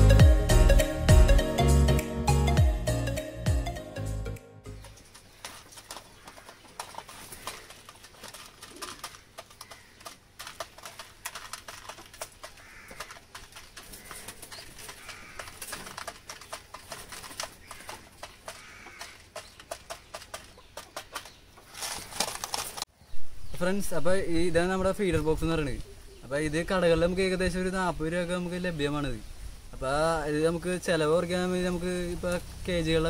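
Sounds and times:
faint bird calls: 4.8 - 10.2, 12.4 - 15.8, 17.5 - 22.3
beaks tapping on plastic: 5.4 - 21.4.

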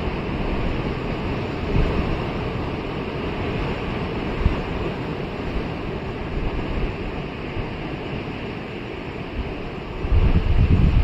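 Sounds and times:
surf breaking on beach: 0.0 - 11.0
wind buffeting microphone: 0.0 - 11.0.

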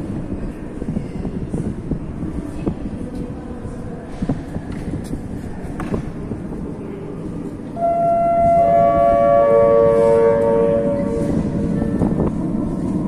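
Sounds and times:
train rumble: 0.0 - 13.0
train traction drive whining: 7.6 - 13.0.

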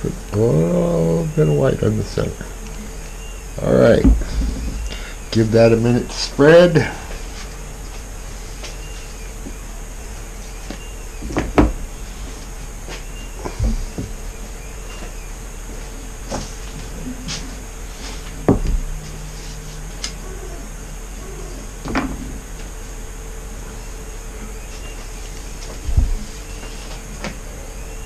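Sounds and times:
room hum: 0.0 - 28.0
knocks and clunks: 4.0 - 5.5.

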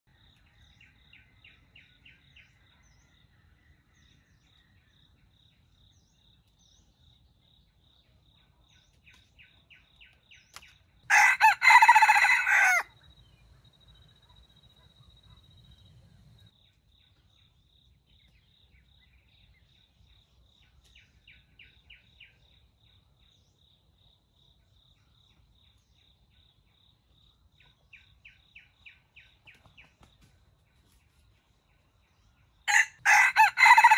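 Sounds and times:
small birds chirping: 0.1 - 33.9
rooster crowing: 11.1 - 13.0, 32.7 - 33.9.

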